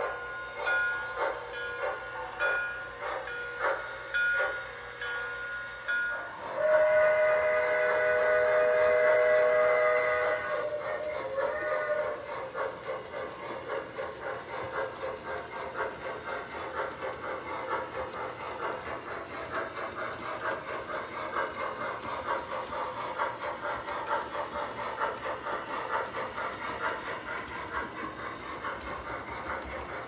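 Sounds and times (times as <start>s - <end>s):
train whistle: 0.0s - 15.4s
model steam locomotive chuffing: 0.0s - 30.0s.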